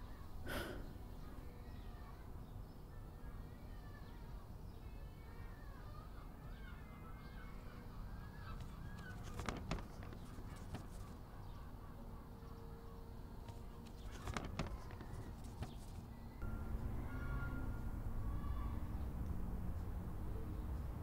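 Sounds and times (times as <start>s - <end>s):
birds chirping: 0.0s - 21.0s
paper rustling: 8.6s - 11.2s, 13.5s - 16.2s
paper tearing from notebook: 9.0s - 11.0s, 13.8s - 16.0s
low outdoor rumble: 13.1s - 21.0s.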